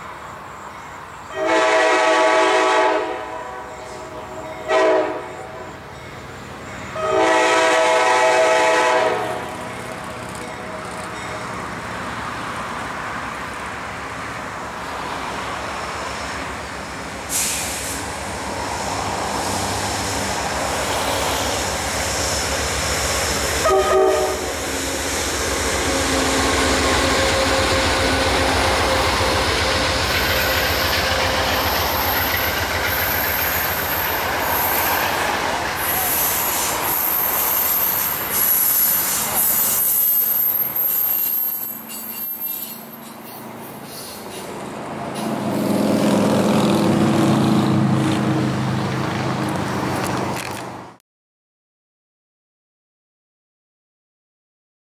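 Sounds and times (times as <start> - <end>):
diesel locomotive engine: 0.0 - 51.0
train coaches rumbling and clattering: 0.0 - 51.0
train horn: 1.3 - 5.8, 6.9 - 9.7, 23.6 - 24.7, 25.8 - 32.4
high wheel squeal: 19.4 - 44.6.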